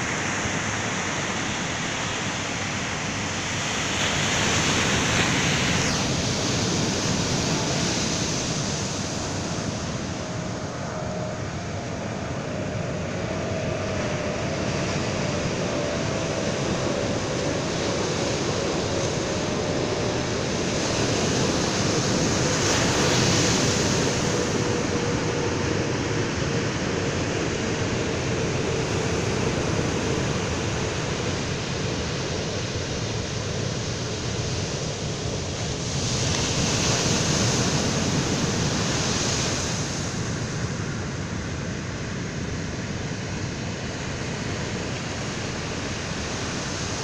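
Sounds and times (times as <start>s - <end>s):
ocean surf breaking on beach: 0.0s - 47.0s.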